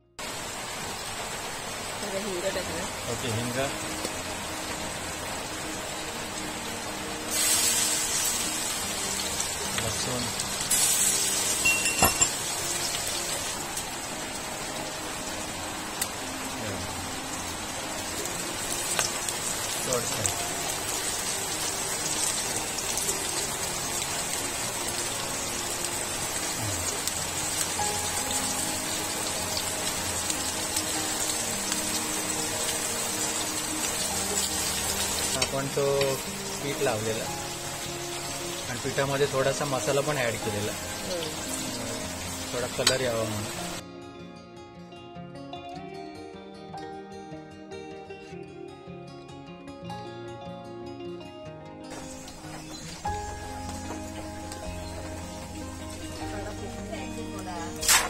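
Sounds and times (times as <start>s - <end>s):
hot oil sizzling: 0.2s - 43.8s, 51.9s - 58.0s
fish frying in oil: 7.3s - 14.8s, 15.9s - 43.8s, 51.9s - 56.9s, 57.5s - 58.0s.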